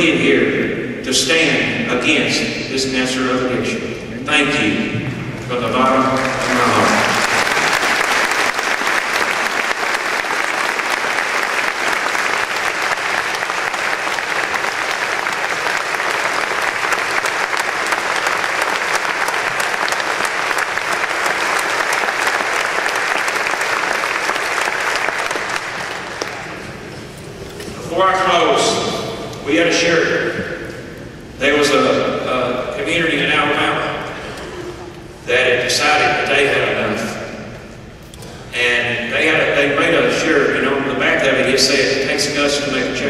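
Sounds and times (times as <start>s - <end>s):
large crowd clapping: 5.7s - 26.9s.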